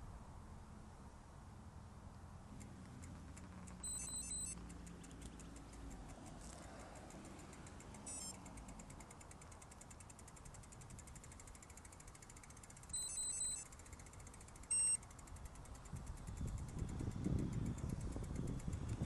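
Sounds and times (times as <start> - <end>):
low traffic rumble: 0.0 - 19.0
bike freehub ticking: 2.5 - 19.0
high electronic beeps: 3.8 - 4.6, 8.0 - 8.5, 12.9 - 13.8, 14.7 - 15.0.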